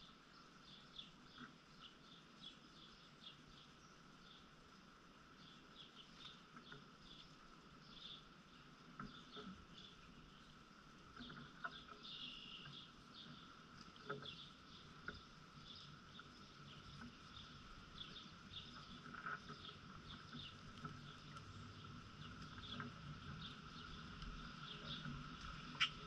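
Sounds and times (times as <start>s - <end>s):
bird chirps: 11.2s - 13.5s, 24.6s - 26.0s.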